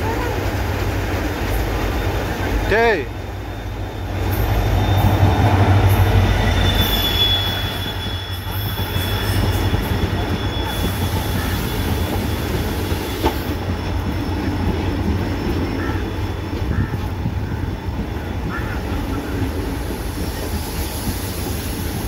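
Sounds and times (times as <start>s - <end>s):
passing train rumble: 0.0s - 22.0s
high wheel squeal: 3.4s - 13.6s.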